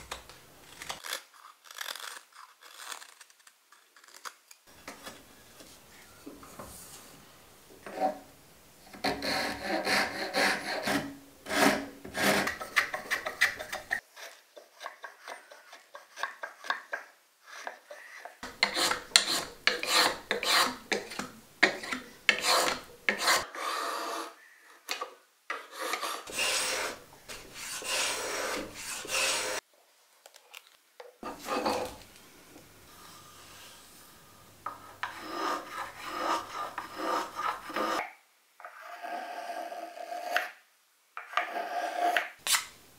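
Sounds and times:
hand file rasping wood: 0:08.9 - 0:24.3, 0:25.5 - 0:29.6, 0:34.8 - 0:38.0.

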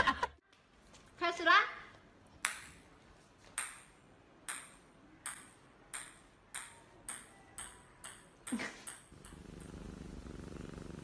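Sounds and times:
ping-pong ball bouncing on tiles: 0:02.4 - 0:02.8, 0:03.6 - 0:09.8.

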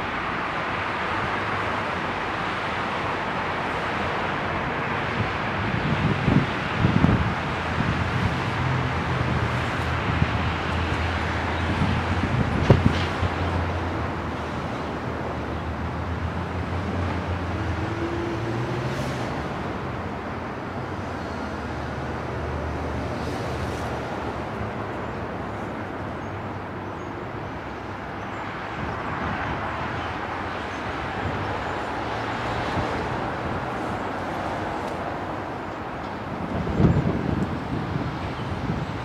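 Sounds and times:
distant diesel locomotive drone: 0:00.0 - 0:39.0
outdoor noise: 0:00.0 - 0:39.0.

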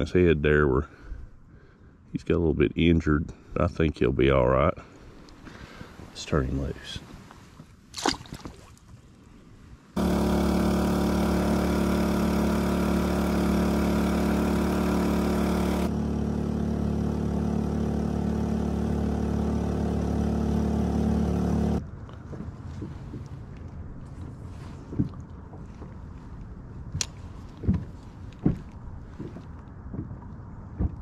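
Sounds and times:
outboard motor running: 0:10.0 - 0:25.8.

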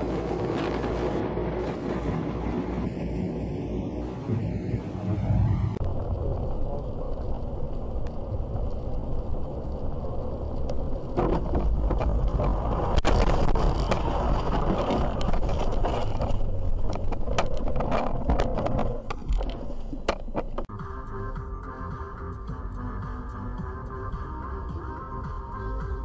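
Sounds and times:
road noise rumble in car: 0:00.0 - 0:20.7
car bumping over rough ground: 0:10.6 - 0:20.7.

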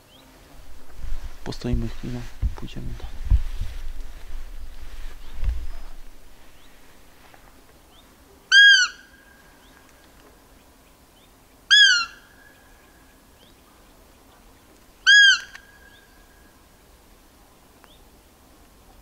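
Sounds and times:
deer call squeaks: 0:08.5 - 0:09.0, 0:11.7 - 0:12.2, 0:15.1 - 0:15.6.

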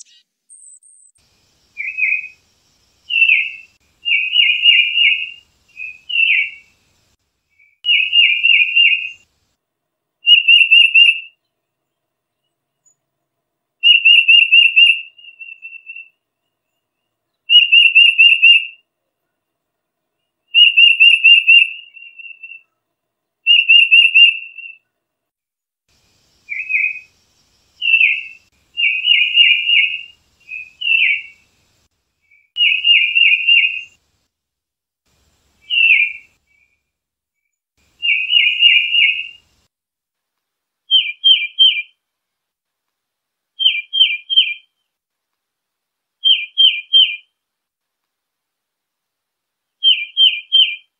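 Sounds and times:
bird whistling repeated notes: 0:00.0 - 0:01.2, 0:01.8 - 0:02.4, 0:03.1 - 0:06.7, 0:07.6 - 0:09.2, 0:10.2 - 0:11.4, 0:13.8 - 0:16.2, 0:17.5 - 0:18.8, 0:20.5 - 0:22.7, 0:23.5 - 0:24.8, 0:26.4 - 0:27.1, 0:27.8 - 0:31.4, 0:32.3 - 0:34.0, 0:35.6 - 0:36.7, 0:38.0 - 0:39.4, 0:40.9 - 0:42.0, 0:43.6 - 0:44.8, 0:46.2 - 0:47.3, 0:49.8 - 0:50.9.

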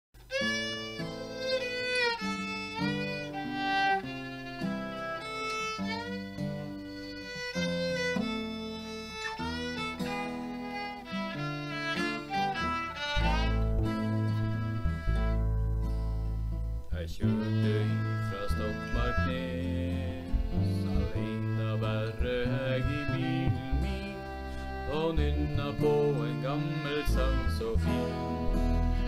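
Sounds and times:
fiddle sliding melody: 0:00.2 - 0:29.0
guitar chords: 0:00.2 - 0:29.0
deep bass: 0:13.2 - 0:25.8.

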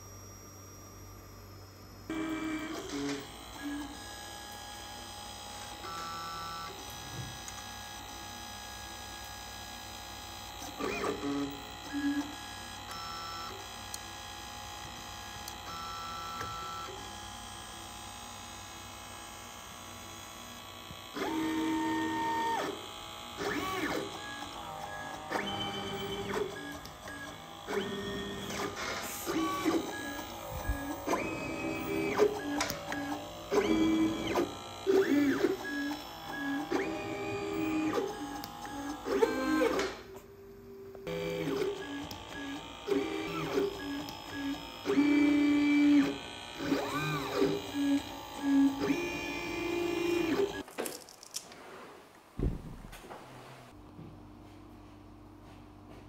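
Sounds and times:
machine humming: 0:00.1 - 0:50.6
stepper motors whining: 0:21.1 - 0:50.6.

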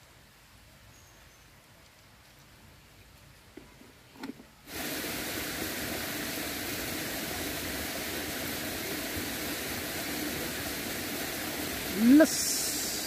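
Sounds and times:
rushing stream water: 0:04.6 - 0:13.0.

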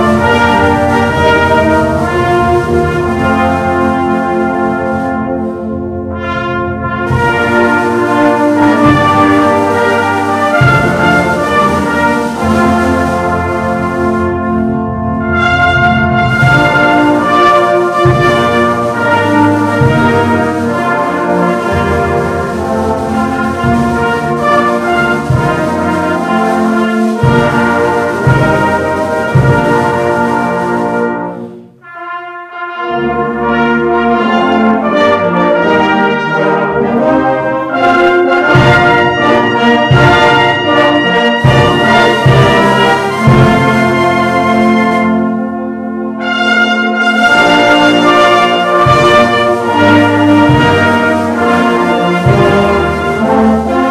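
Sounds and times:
brass band playing hymn: 0:00.0 - 0:53.9.

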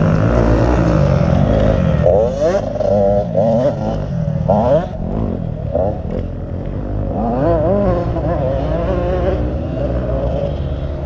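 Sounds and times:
motocross bike engines revving: 0:00.0 - 0:11.0.

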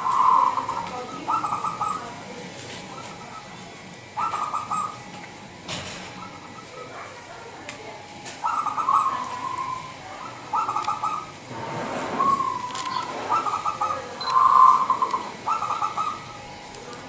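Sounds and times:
dove cooing: 0:00.0 - 0:05.3, 0:08.3 - 0:16.9.

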